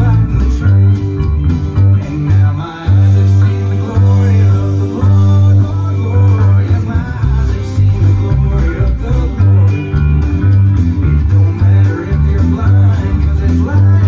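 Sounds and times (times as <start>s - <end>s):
guitar-led music: 0.0s - 14.0s
upright bass plucked: 0.0s - 14.0s.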